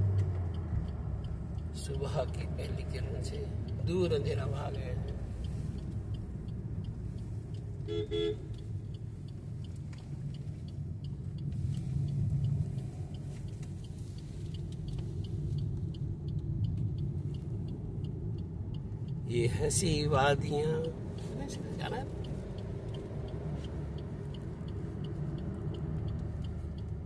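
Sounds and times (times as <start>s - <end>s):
car engine and road rumble: 0.0s - 27.0s
car horn toots: 7.8s - 8.6s.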